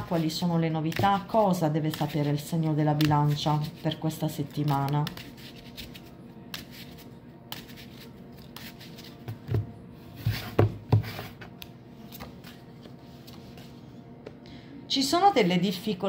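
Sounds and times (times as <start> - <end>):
cards being shuffled: 0.0 - 2.4, 4.5 - 9.4
cards knocking on table: 9.3 - 11.3.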